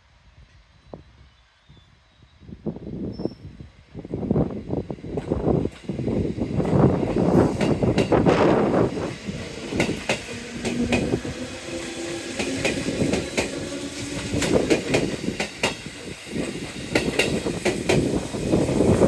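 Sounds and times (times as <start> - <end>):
train wheels clicking over joints: 5.1 - 19.0.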